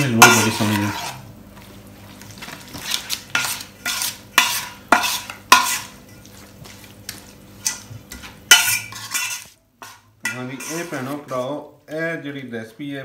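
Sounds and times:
metal spoon scraping a steel bowl: 0:00.2 - 0:01.2, 0:02.8 - 0:06.3, 0:07.1 - 0:11.5.

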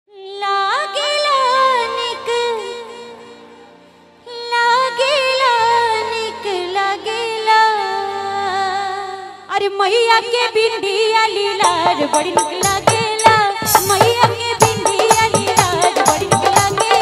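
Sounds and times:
woman singing wordless phrases: 0:04.3 - 0:17.0.

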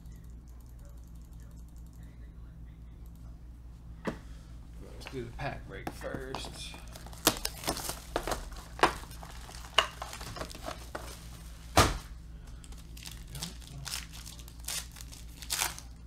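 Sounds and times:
foil wrapper crinkling: 0:06.8 - 0:11.4, 0:12.6 - 0:16.0.

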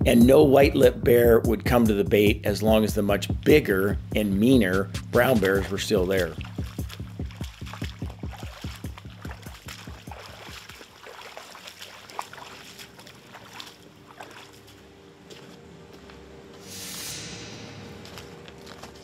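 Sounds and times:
boots splashing through water: 0:04.3 - 0:15.5
rushing noise: 0:16.6 - 0:18.7.

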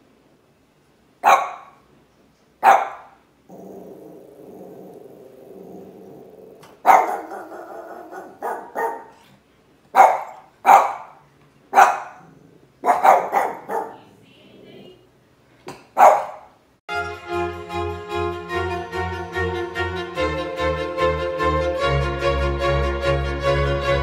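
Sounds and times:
dog barking: 0:01.2 - 0:01.8, 0:02.6 - 0:03.2, 0:06.8 - 0:09.2, 0:09.9 - 0:14.1, 0:16.0 - 0:16.6
dog growling: 0:03.5 - 0:09.4, 0:12.1 - 0:14.8.

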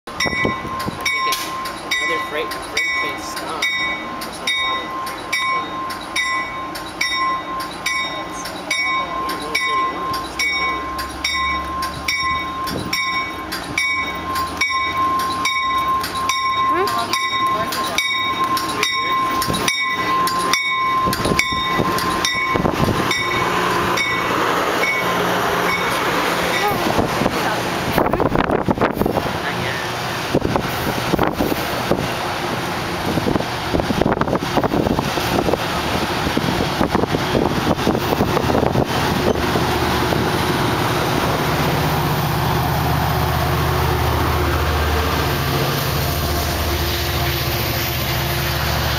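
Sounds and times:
diesel locomotive hum: 0:00.1 - 0:48.9
train cars rumbling past: 0:00.1 - 0:48.9
train air bell ringing: 0:00.2 - 0:27.0.

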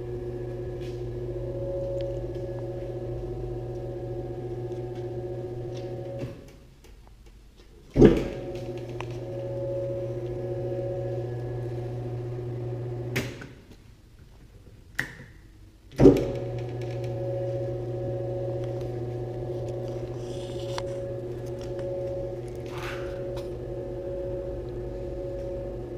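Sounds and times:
fork mixer humming: 0:00.0 - 0:06.2, 0:08.6 - 0:13.1, 0:16.4 - 0:25.9.

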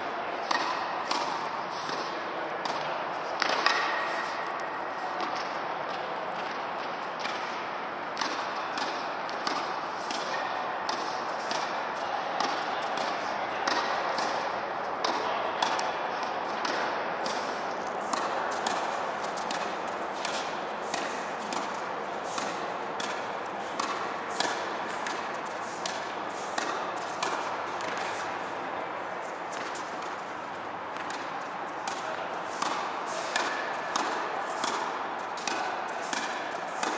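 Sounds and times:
steady background noise: 0:00.0 - 0:36.9
tennis balls bouncing on court: 0:00.4 - 0:36.9
tennis balls struck by rackets: 0:00.4 - 0:36.9.

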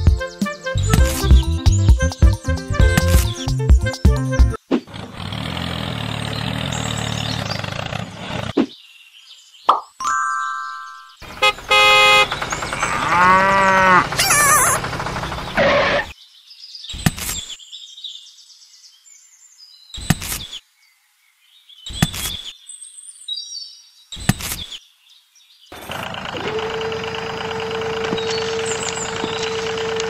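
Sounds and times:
engine-like drone: 0:04.9 - 0:08.6, 0:11.2 - 0:16.2, 0:25.8 - 0:30.0.

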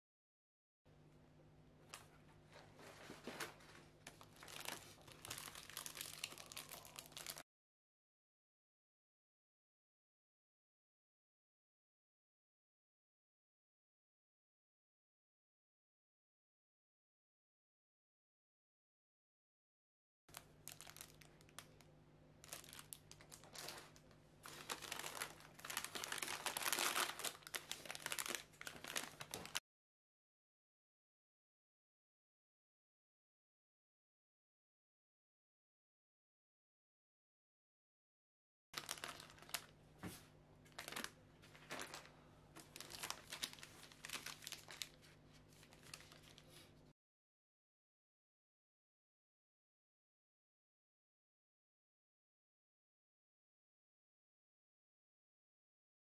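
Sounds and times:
plastic wrapper crinkling: 0:01.9 - 0:07.4, 0:20.3 - 0:29.6, 0:38.8 - 0:40.1, 0:40.7 - 0:46.7.

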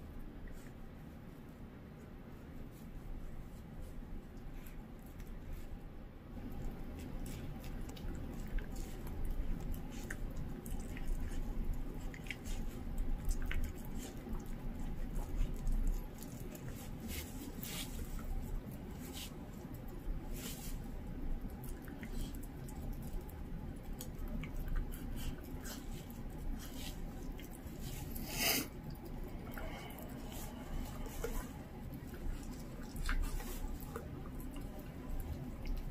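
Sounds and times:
dog chewing raw meat: 0:06.4 - 0:35.9.

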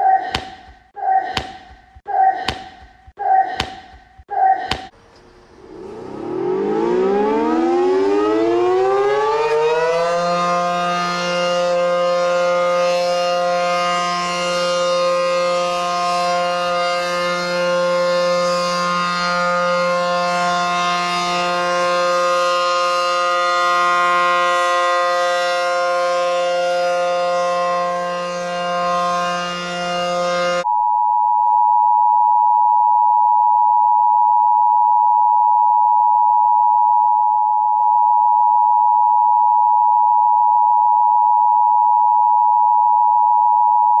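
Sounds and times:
siren at steady pitch: 0:05.6 - 0:44.0.

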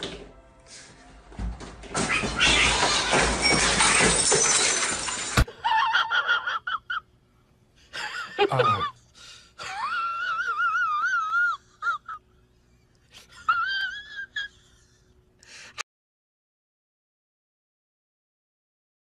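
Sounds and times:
objects crashing off a desk: 0:01.4 - 0:05.5.

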